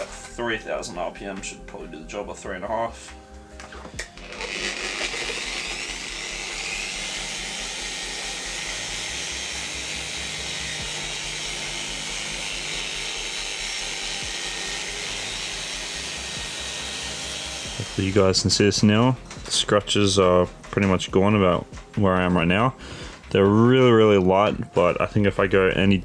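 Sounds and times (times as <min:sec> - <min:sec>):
electric polisher whining: 0:03.6 - 0:18.6.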